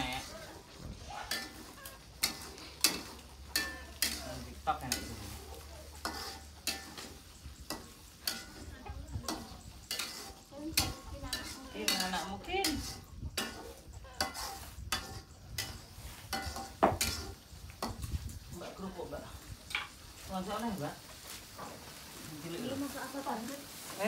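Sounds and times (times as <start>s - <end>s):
metal spatula scraping a pan: 0.0s - 18.9s
food sizzling in a pan: 1.3s - 24.0s.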